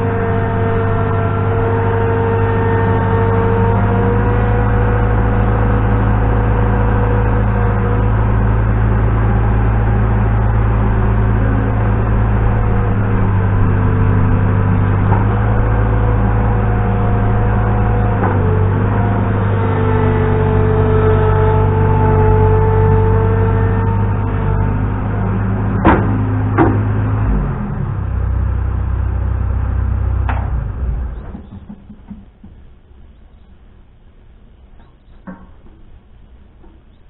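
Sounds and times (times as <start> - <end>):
diesel engine running: 0.0 - 37.0
knock: 31.3 - 32.6.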